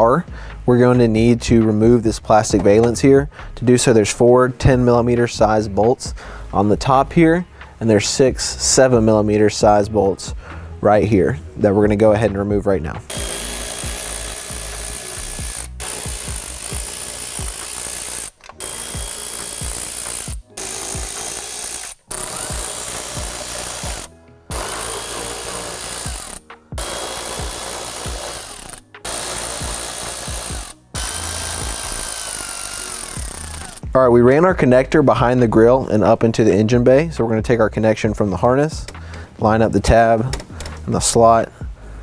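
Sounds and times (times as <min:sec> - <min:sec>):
cordless ratchet running: 0:13.1 - 0:33.9.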